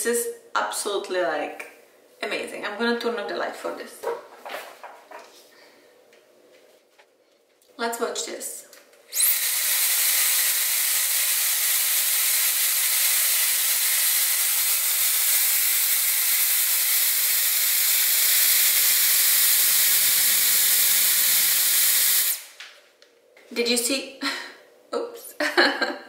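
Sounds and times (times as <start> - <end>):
hair dryer blowing air: 9.1 - 22.6.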